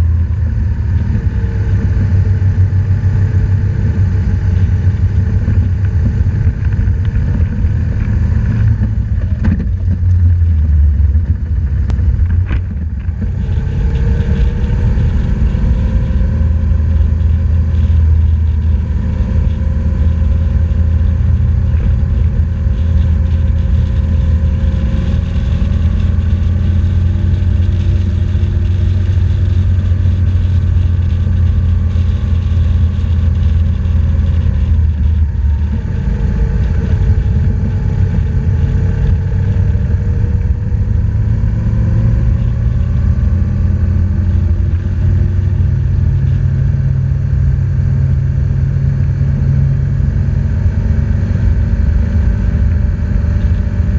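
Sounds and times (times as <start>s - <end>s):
motorcycle engine running: 0.0s - 53.9s
wind noise: 0.0s - 53.9s.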